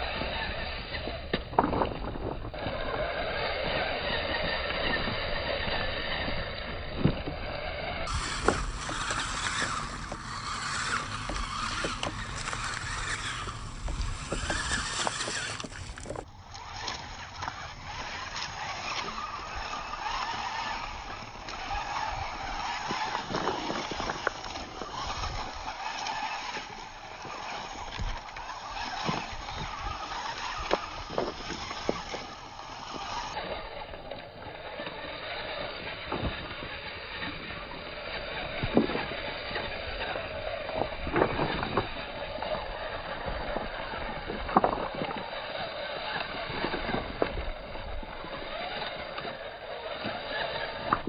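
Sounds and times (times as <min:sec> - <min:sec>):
steady rushing noise: 0:02.5 - 0:33.8.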